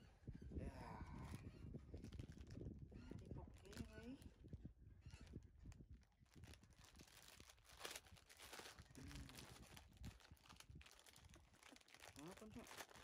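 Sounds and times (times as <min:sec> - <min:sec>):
plastic bag crinkling: 0:06.3 - 0:13.0.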